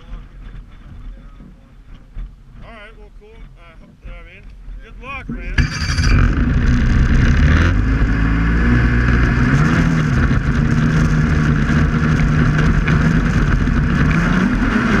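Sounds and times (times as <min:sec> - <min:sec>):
snowmobile engine running: 0:05.3 - 0:15.0.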